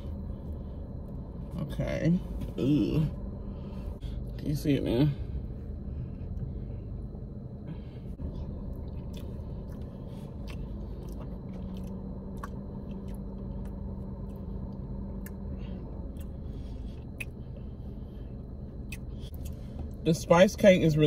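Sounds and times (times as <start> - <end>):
low hum inside car: 0.0 - 21.0
person chewing soft food: 8.2 - 20.0.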